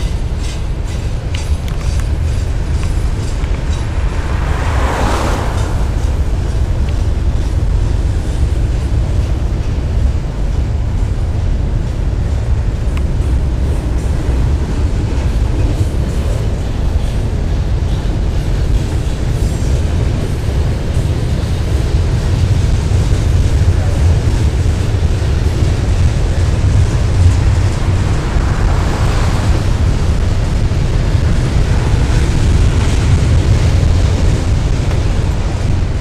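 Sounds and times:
train wheels rumbling on rails: 0.0 - 36.0
high rushing noise: 1.5 - 8.6, 24.5 - 33.8.

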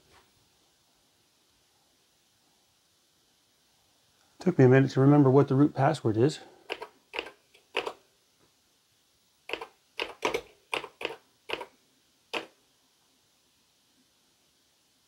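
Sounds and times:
keyboard key clicks: 9.5 - 11.7.

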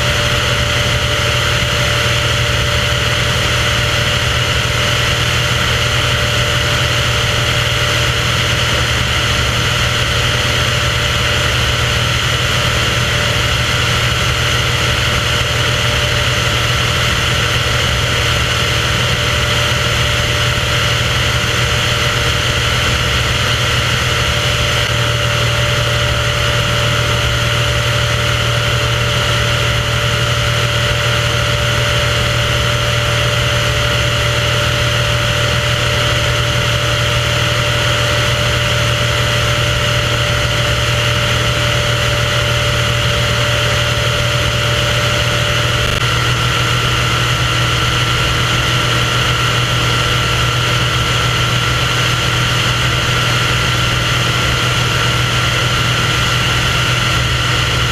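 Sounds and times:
small aircraft engine drone: 0.0 - 57.9.

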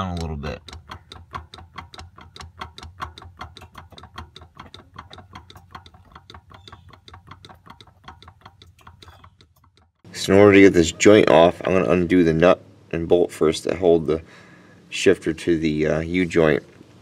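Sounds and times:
gear shifter clicking and knocking: 0.0 - 10.1.

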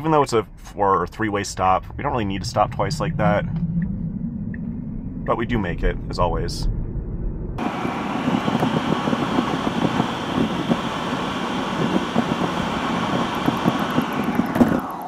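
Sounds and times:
road and tyre noise in car: 7.6 - 15.0.

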